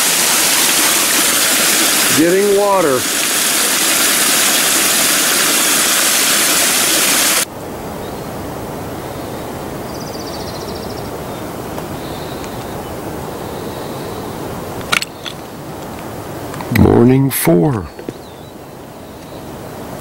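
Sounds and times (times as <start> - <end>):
stream splashing over rocks: 0.0 - 7.5.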